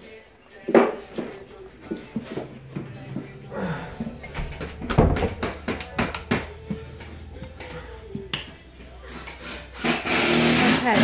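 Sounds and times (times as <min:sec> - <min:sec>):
footsteps: 0:00.6 - 0:09.7
knocks and taps: 0:04.4 - 0:06.8.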